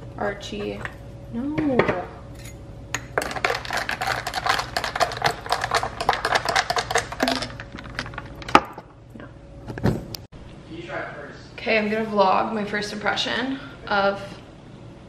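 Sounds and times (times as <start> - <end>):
metal stirrer clinking glass and ice: 3.2 - 8.2.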